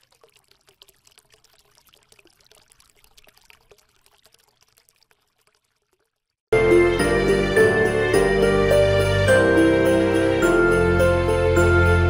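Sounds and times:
trickling patter of tiny crackles: 0.0s - 6.4s.

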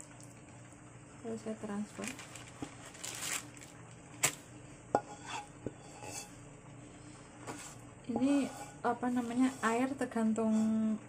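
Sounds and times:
utensil scraping a pot: 5.0s - 6.4s, 7.4s - 11.0s.

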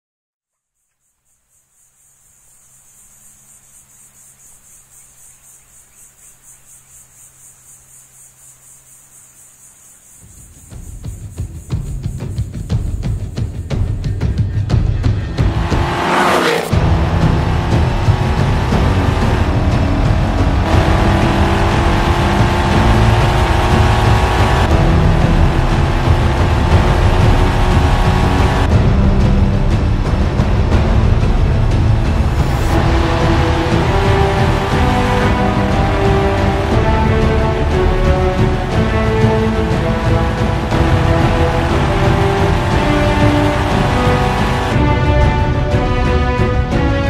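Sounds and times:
insects chirring: 0.5s - 14.7s
car engine rumbling: 10.4s - 45.0s
orchestral film music: 16.7s - 47.0s.

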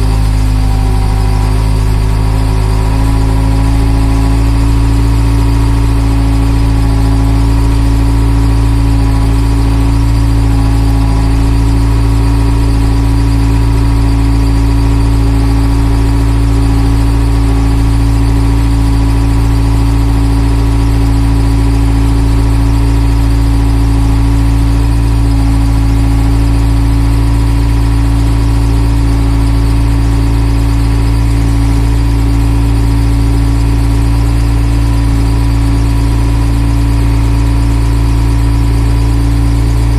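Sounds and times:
diesel engine rumbling: 0.0s - 39.9s
steady whine: 0.0s - 39.9s.

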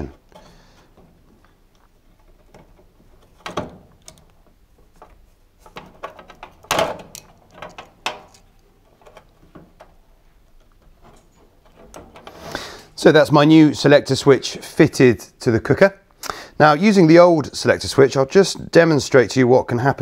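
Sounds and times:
spade connectors clicking: 0.3s - 12.4s.

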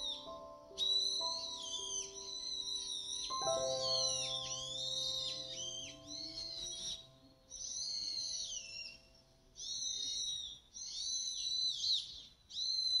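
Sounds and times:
background music: 0.0s - 8.3s
bird calling: 0.0s - 13.0s.

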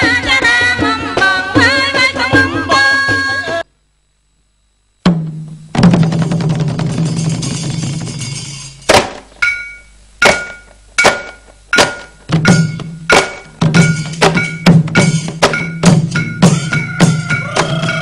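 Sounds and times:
sharp ringing percussion strikes: 5.2s - 18.0s
percussion roll: 5.7s - 18.0s.

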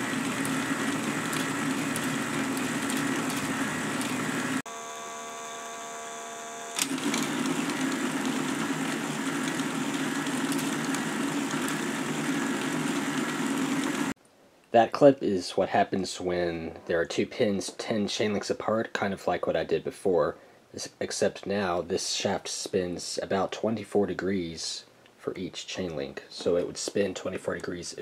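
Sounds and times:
toy motor whirring with ticking: 0.0s - 4.3s, 9.4s - 12.9s.

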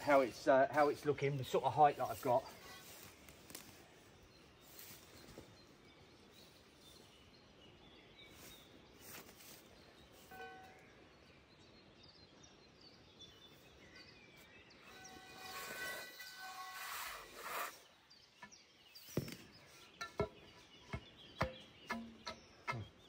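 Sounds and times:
steel pole knocking: 20.0s - 23.0s.

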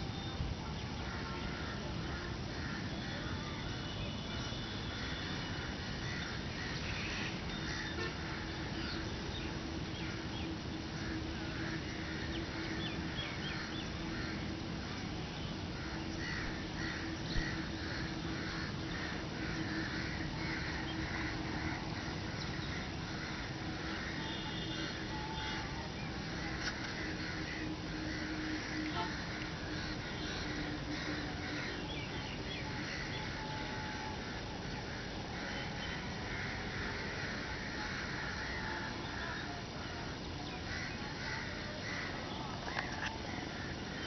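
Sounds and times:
faint steady hum: 0.0s - 44.0s
birds making harsh calls: 4.1s - 9.0s, 15.8s - 44.0s.

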